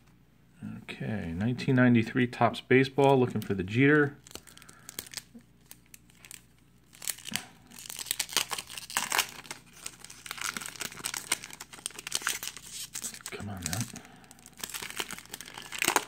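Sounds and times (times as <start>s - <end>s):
wrapper tearing and crinkling: 4.2s - 16.0s.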